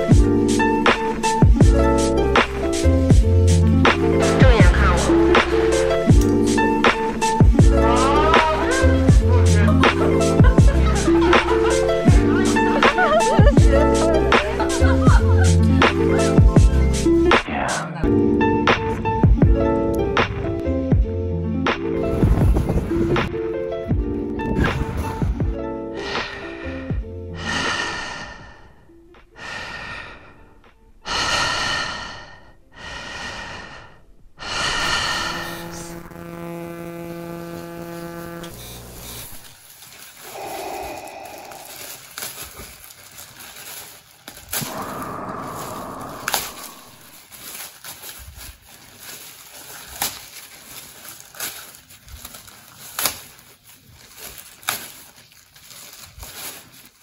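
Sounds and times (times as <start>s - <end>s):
plastic sheeting crinkling: 8.1s - 15.6s, 37.3s - 57.0s
person gasping breaths: 25.9s - 35.9s, 40.2s - 43.0s, 44.6s - 47.3s
sharp plastic crackles: 37.8s - 57.0s.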